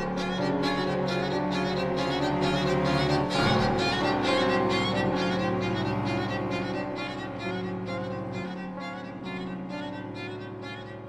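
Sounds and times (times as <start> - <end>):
piano repeated notes: 0.0 - 11.0
violin: 0.0 - 11.0.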